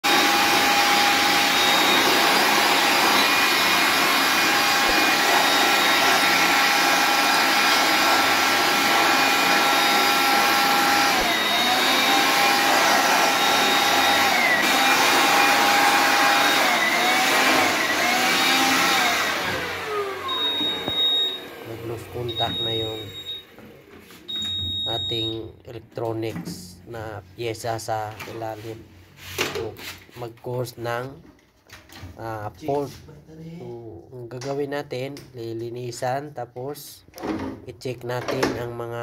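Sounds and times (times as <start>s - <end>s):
electric air blower whining: 0.0s - 24.6s.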